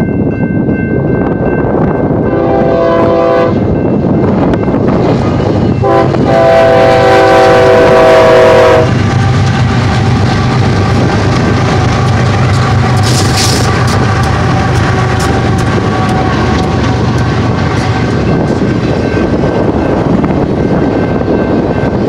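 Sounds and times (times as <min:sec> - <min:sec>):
diesel locomotive engines rumbling: 0:00.0 - 0:22.0
train air horn blasts: 0:02.3 - 0:03.7, 0:05.8 - 0:09.0
wheels clattering on rails: 0:08.9 - 0:22.0.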